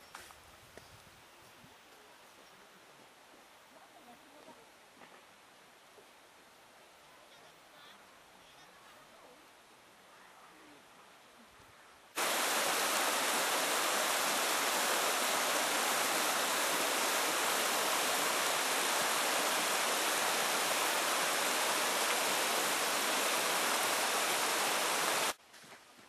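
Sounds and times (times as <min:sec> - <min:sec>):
river rushing over rocks: 0:12.2 - 0:25.4.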